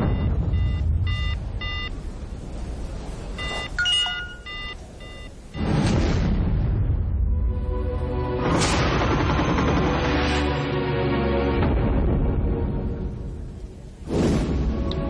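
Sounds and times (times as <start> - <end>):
mobile phone beeps: 0.0 - 1.9, 3.4 - 5.7.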